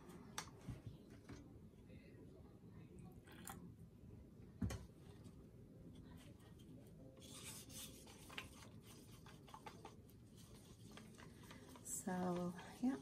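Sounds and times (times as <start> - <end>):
stir stick scraping a cup: 7.2 - 13.0.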